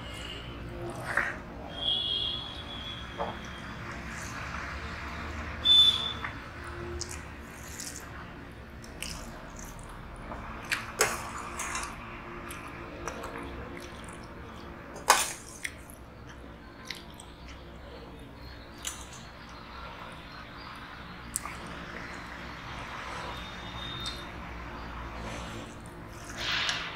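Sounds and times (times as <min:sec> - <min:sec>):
chewing: 0:07.0 - 0:08.2, 0:08.8 - 0:10.0, 0:10.6 - 0:17.6, 0:21.3 - 0:21.7.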